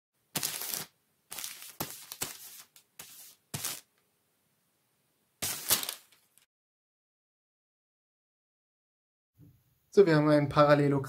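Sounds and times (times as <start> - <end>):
paper sliding across paper: 0.6 - 3.8.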